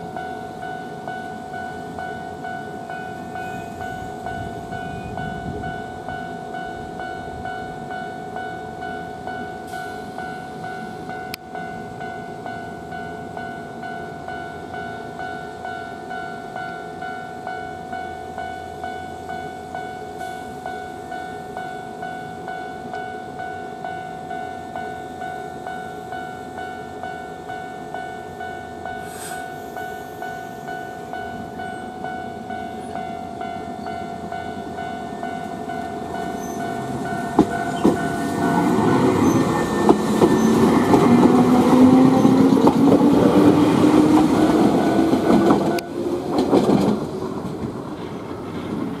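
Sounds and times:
pulsing ringing tone: 0.0s - 42.6s
train motor whine: 32.7s - 49.0s
train wheel clatter: 35.2s - 49.0s.

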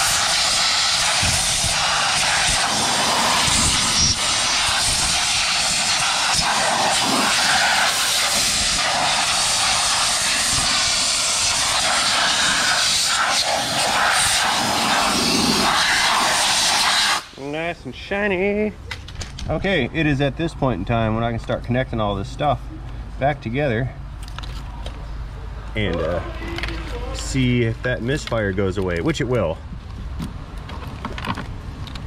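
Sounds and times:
compressed air blowgun hissing: 0.0s - 17.4s.

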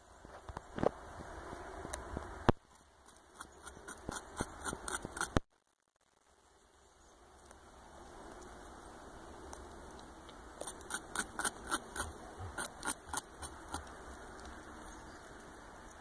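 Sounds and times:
beaver gnawing bark: 2.5s - 5.4s, 9.4s - 14.8s.

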